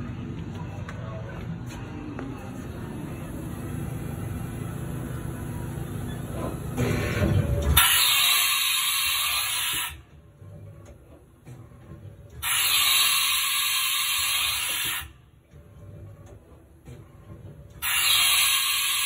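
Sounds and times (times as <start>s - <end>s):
low mechanical rumble: 0.0s - 7.9s, 9.4s - 12.5s, 15.0s - 17.9s
compressed air hiss: 7.8s - 10.0s, 12.4s - 15.1s, 17.8s - 19.0s.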